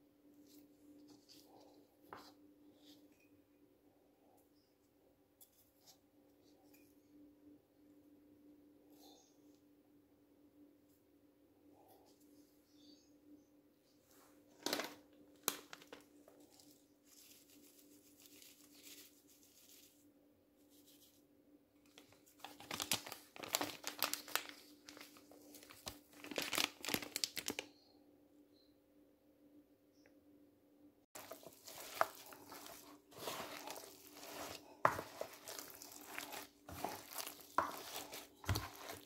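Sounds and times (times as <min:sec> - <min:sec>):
spice packets crinkling: 0:15.4 - 0:20.0, 0:21.9 - 0:27.7, 0:31.2 - 0:39.0.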